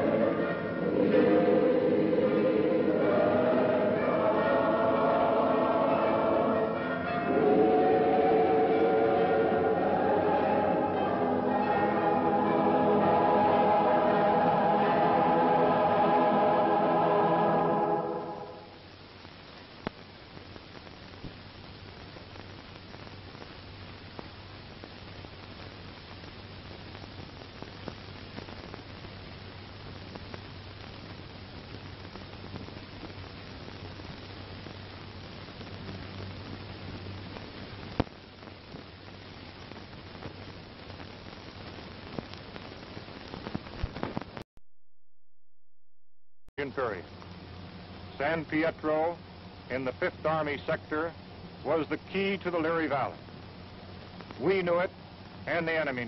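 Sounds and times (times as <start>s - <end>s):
choir singing held chords: 0.0s - 18.7s
low hum: 0.0s - 18.9s
film soundtrack hiss: 0.0s - 44.4s, 46.6s - 56.0s
faint crackles and pops: 18.0s - 44.5s, 46.6s - 56.0s.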